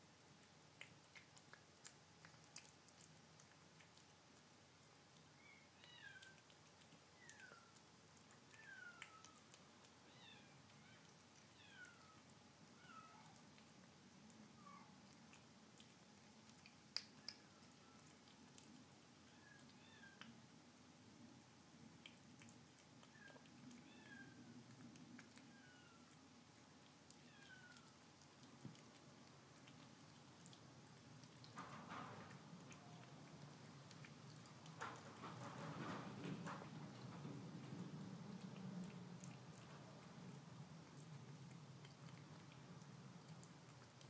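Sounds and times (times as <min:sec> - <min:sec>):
kitten eating from bowl: 0:00.0 - 0:44.0
faint cat meowing: 0:08.5 - 0:13.4, 0:14.5 - 0:15.0, 0:19.2 - 0:20.4, 0:23.0 - 0:24.5, 0:25.4 - 0:26.2, 0:27.2 - 0:28.0.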